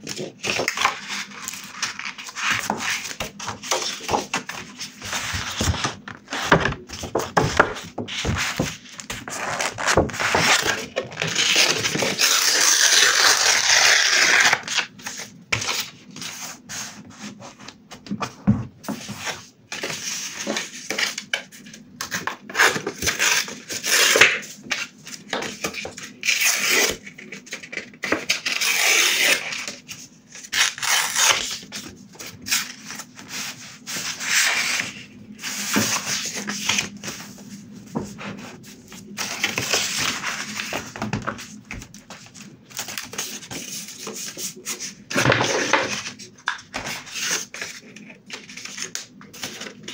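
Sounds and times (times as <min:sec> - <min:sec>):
paper rustling and crinkling: 0:00.0 - 0:49.9
paper tearing: 0:09.3 - 0:14.9, 0:30.4 - 0:31.6.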